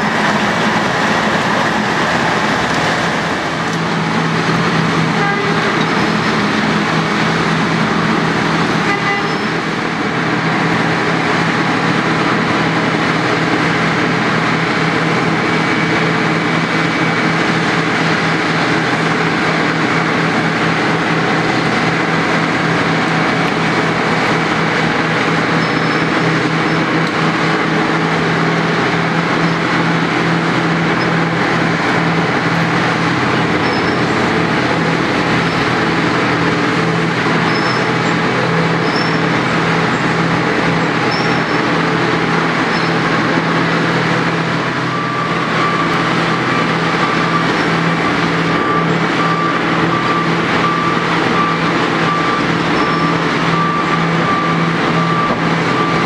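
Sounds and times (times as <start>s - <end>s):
milling machine grinding asphalt: 0.0s - 56.0s
reversing alarm beeping: 19.2s - 56.0s.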